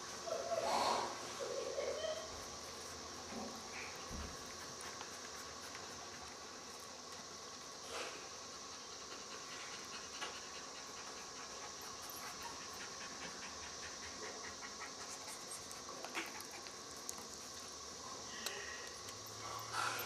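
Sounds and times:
steady hiss: 0.0s - 20.0s
puppies panting: 2.4s - 7.7s, 8.3s - 17.5s.

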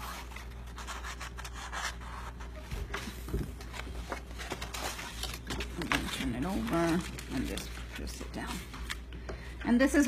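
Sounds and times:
paper rustling and scraping: 0.0s - 9.0s.

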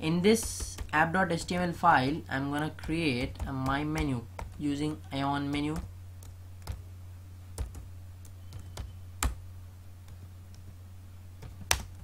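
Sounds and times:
steady low hum: 0.0s - 12.0s
computer keyboard keystrokes: 7.6s - 9.4s, 11.4s - 12.0s.

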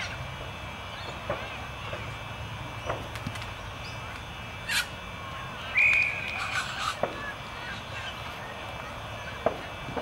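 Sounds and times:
whistle blast: 5.7s - 6.3s.

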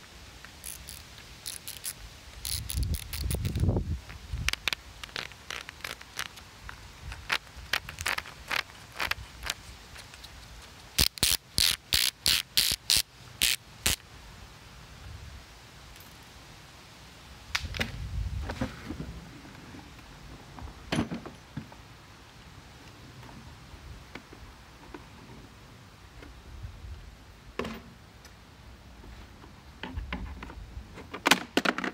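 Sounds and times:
ratcheting clicks: 0.6s - 3.6s.

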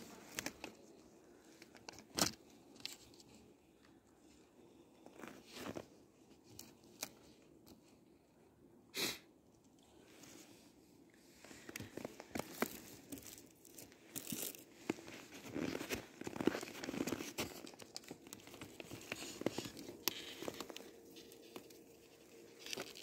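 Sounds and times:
plastic sheet crinkling and rustling: 11.5s - 23.0s.

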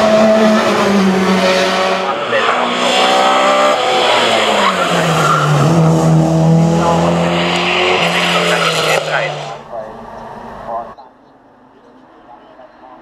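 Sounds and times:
tyres skidding: 0.0s - 11.0s
race car engine: 0.0s - 13.0s.

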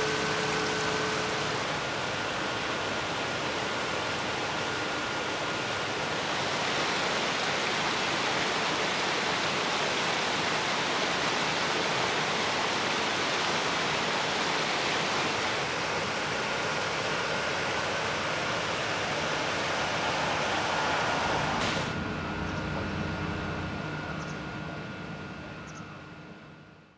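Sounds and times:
water rushing over rocks: 6.0s - 22.0s.

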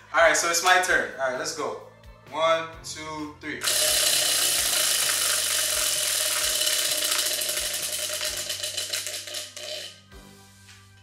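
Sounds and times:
prize wheel clicking: 3.6s - 10.0s.

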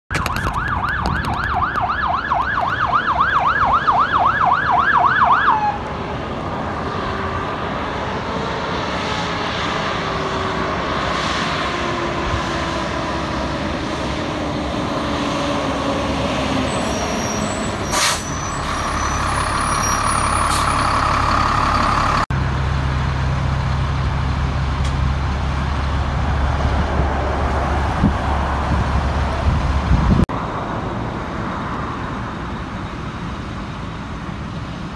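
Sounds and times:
fire engine siren yelping: 0.1s - 22.3s
diesel engine droning: 0.1s - 34.9s
siren winding down: 0.2s - 6.0s, 11.8s - 22.3s.

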